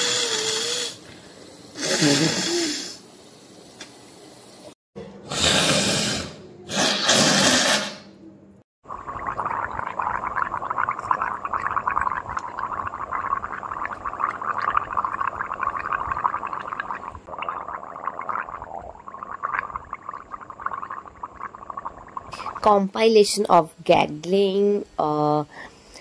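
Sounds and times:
person gargling: 1.8 - 2.9, 9.2 - 22.5.

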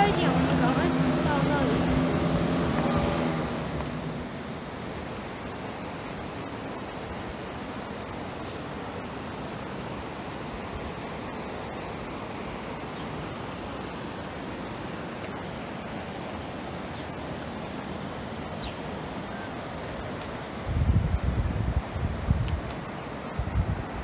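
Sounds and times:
creek water flowing: 0.0 - 24.0
insects droning: 0.0 - 24.0.

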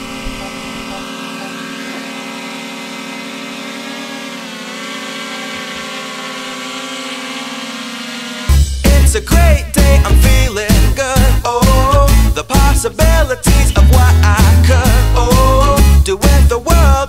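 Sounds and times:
drone propellers whining: 0.0 - 9.7.

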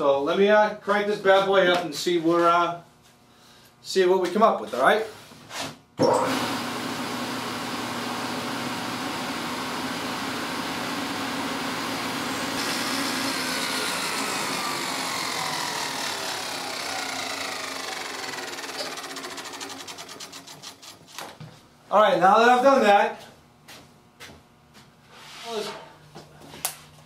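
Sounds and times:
table saw running: 6.1 - 21.3.

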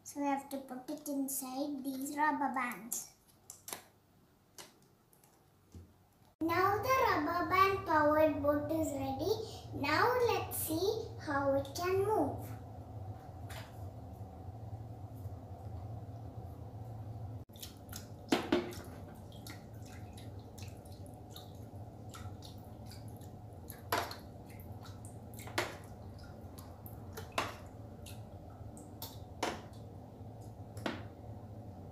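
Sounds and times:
steady low hum: 6.4 - 31.9.

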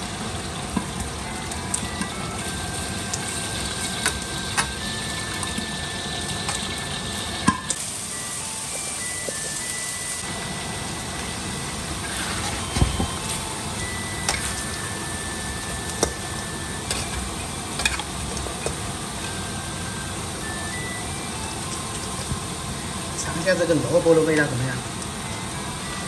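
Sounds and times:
metal spatula scraping a wok: 12.0 - 12.7.

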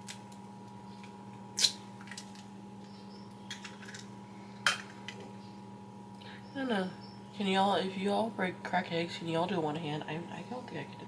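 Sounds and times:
steady low hum: 0.0 - 11.0
eggs cracking against bowl: 3.3 - 4.1.

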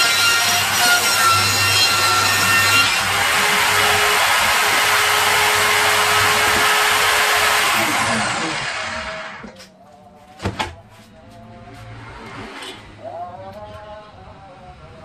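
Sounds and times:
circular saw whining: 0.0 - 9.5
sharp wooden knocks: 6.2 - 7.0.

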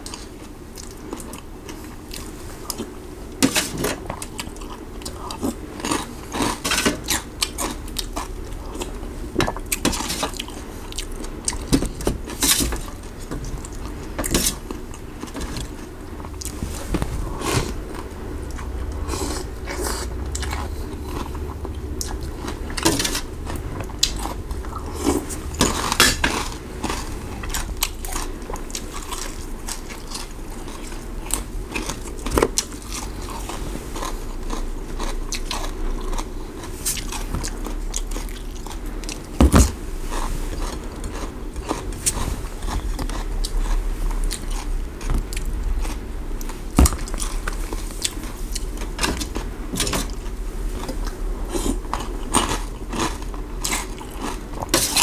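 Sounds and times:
chewing and crunching bites: 0.0 - 55.0
low steady hum: 0.0 - 55.0
slurping: 12.3 - 37.4.

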